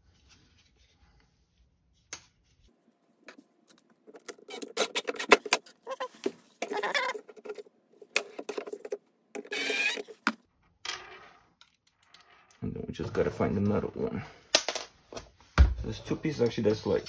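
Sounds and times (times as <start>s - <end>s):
cordless drill whirring: 9.5s - 10.1s.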